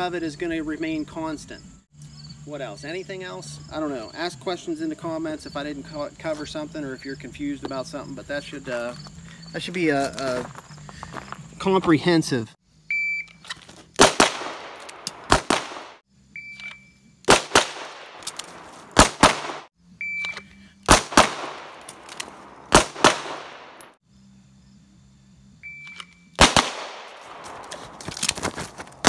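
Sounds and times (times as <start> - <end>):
handgun shots: 14.0 - 16.0, 17.3 - 19.7, 20.9 - 23.9, 26.4 - 28.4
shot timer beep: 20.0 - 20.6.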